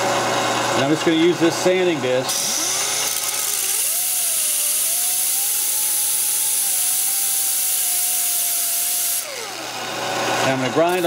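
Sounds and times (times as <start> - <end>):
die grinder sanding metal: 2.3 - 11.0.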